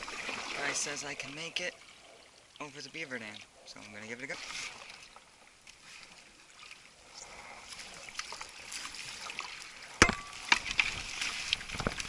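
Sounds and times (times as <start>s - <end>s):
paddle strokes splashing: 0.0s - 12.0s
canoe hull knocking on sticks: 10.0s - 11.1s.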